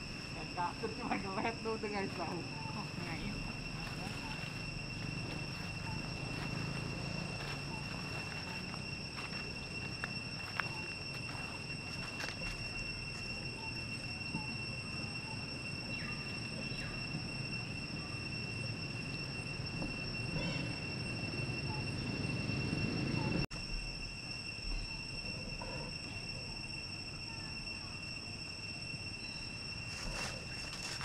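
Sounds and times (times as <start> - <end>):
high-pitched insect drone: 0.0 - 31.0.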